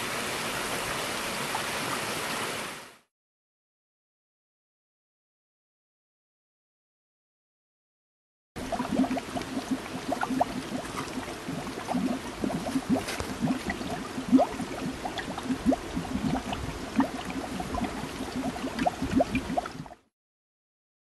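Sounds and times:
gas bubbling through water: 8.6s - 20.1s.

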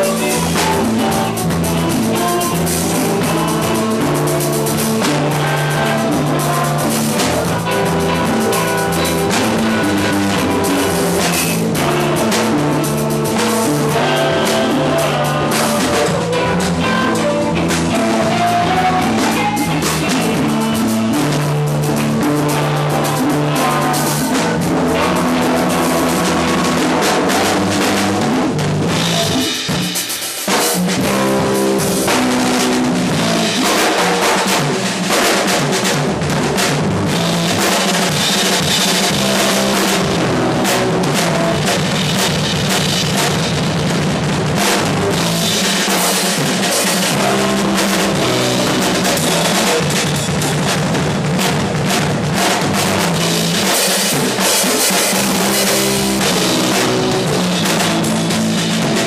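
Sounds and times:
drum kit: 0.0s - 59.0s
electric guitars: 0.0s - 59.0s
hand drums: 0.0s - 59.0s.

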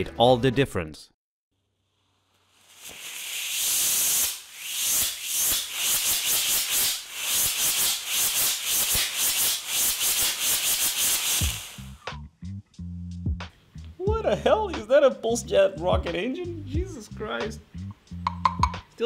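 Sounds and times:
rocket motor exhaust hissing: 2.3s - 12.1s.

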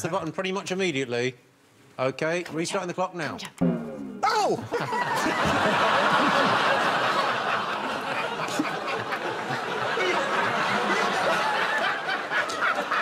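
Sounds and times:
audience laughing: 4.6s - 13.0s.

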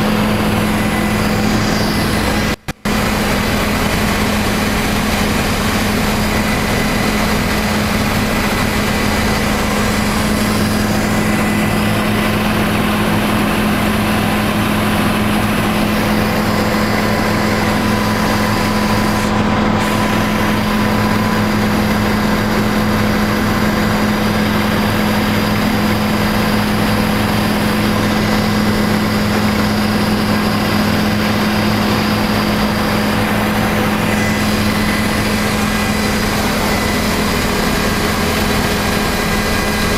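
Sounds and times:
helicopter engine and rotors droning: 0.0s - 39.9s
faint high whine: 24.1s - 39.7s.

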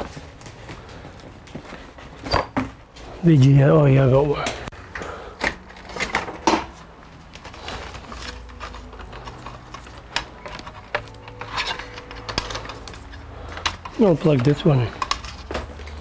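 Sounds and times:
cable plugs clicking and knocking: 4.4s - 16.0s.

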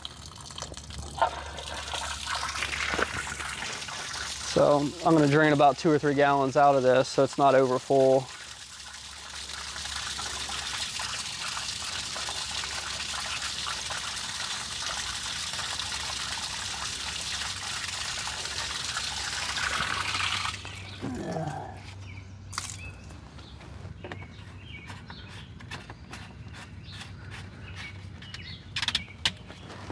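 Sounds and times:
water draining from tank: 0.0s - 21.6s.

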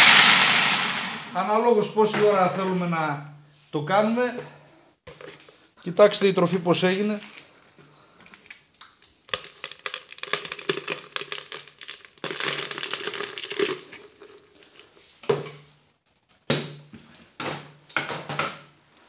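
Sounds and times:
dry kibble rustling in bucket: 9.2s - 15.1s.

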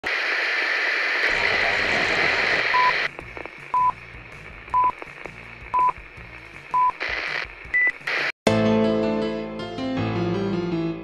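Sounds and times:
tv static hiss: 0.0s - 8.4s
electronic keyboard music: 8.5s - 11.0s.

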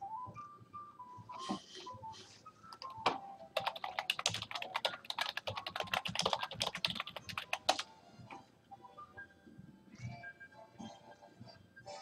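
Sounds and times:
computer keyboard typing: 3.6s - 7.9s.

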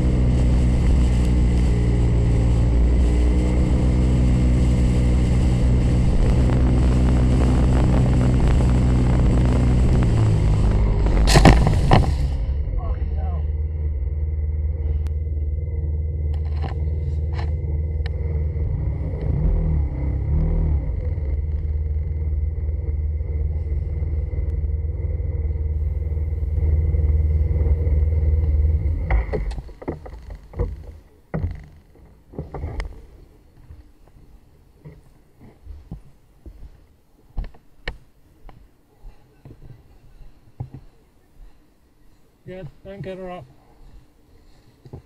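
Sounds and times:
wind noise: 0.0s - 30.9s
motorcycle engine rumble: 0.0s - 45.0s
knocks and clicks: 29.0s - 32.9s.

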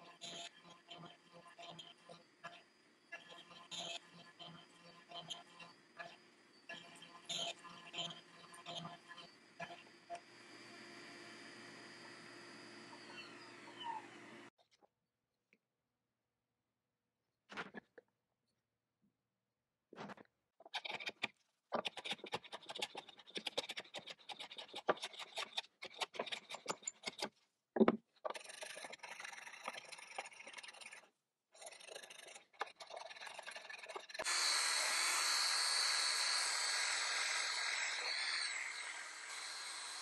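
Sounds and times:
power drill with brush wheel: 34.2s - 40.0s.

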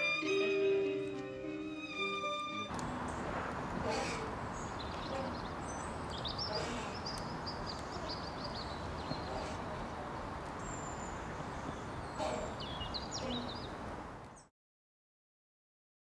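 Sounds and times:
steady background noise: 0.0s - 14.4s
small birds chirping: 2.7s - 14.5s.

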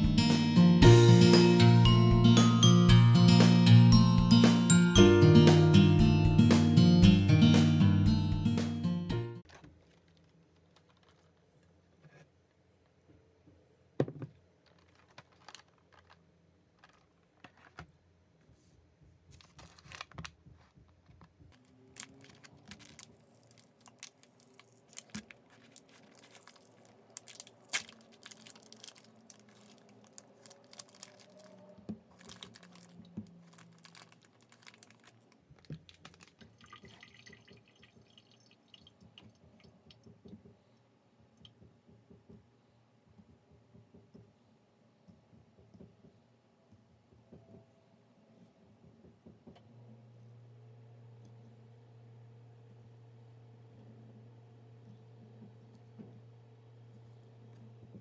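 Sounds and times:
plastic package crinkling: 9.4s - 11.6s, 14.6s - 17.8s, 19.3s - 38.8s.

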